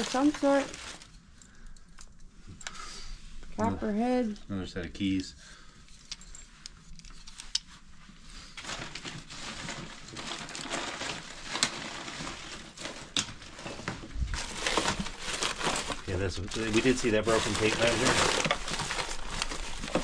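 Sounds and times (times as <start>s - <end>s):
cardboard and plastic rustling: 0.0s - 1.2s, 8.1s - 20.0s.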